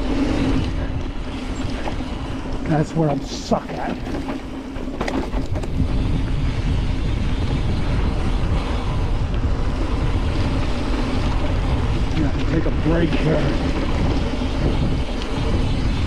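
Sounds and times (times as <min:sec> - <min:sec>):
bike tyre rumble: 0:00.0 - 0:16.0
wind noise on microphone: 0:00.0 - 0:16.0
bike knocks: 0:03.8 - 0:06.0.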